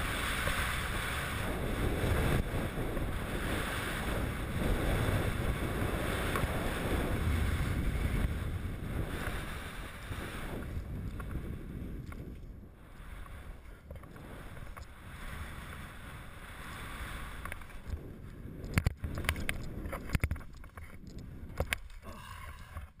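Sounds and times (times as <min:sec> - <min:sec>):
skis hissing over snow: 0:00.0 - 0:11.6, 0:12.8 - 0:18.1
wind rushing over microphone: 0:00.0 - 0:23.0
sharp knocks and clicks: 0:18.6 - 0:22.0.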